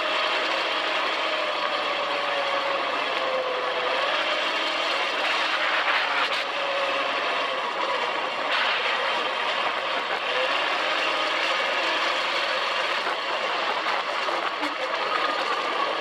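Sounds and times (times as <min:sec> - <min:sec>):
dune buggy engine running: 0:00.0 - 0:16.0.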